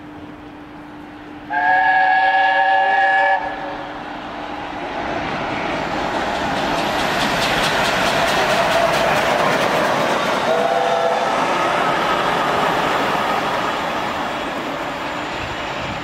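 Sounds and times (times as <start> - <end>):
steam locomotive approaching: 0.0 - 16.0
steam locomotive chime whistle: 1.5 - 3.8, 10.5 - 11.3
wheels clattering over rail joints: 6.0 - 10.6.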